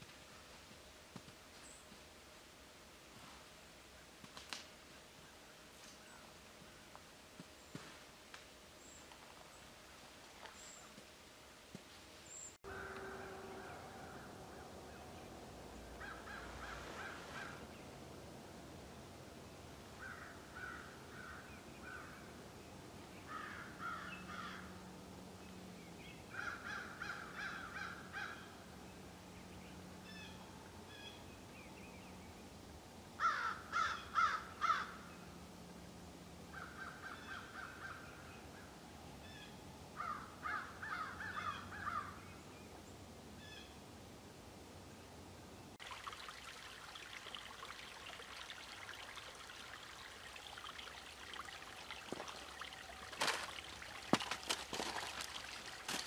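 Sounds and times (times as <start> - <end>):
crows cawing: 16.0 - 17.6, 20.0 - 22.2, 23.3 - 24.7, 26.4 - 28.5, 33.2 - 35.0, 40.0 - 42.2.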